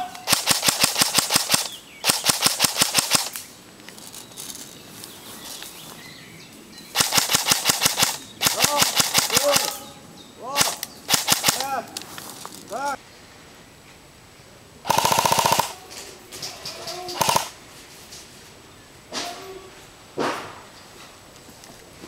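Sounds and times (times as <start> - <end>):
airsoft rifle full-auto bursts: 0.0 - 3.4, 7.0 - 9.8, 10.6 - 11.8, 14.9 - 15.8, 17.2 - 17.6.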